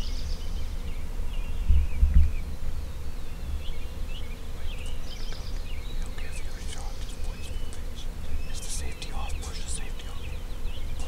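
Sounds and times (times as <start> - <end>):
songbirds chirping: 0.0 - 11.0.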